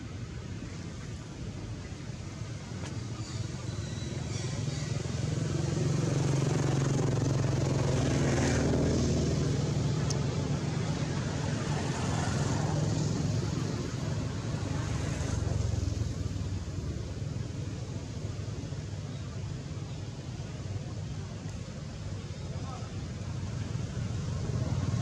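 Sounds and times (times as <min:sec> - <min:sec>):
passing road traffic: 0:00.0 - 0:25.0.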